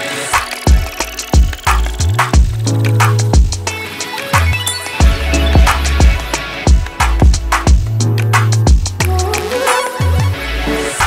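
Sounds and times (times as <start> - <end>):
drum hits: 0.4 - 3.8, 4.4 - 9.2
deep bass notes: 0.7 - 3.7, 4.4 - 9.4.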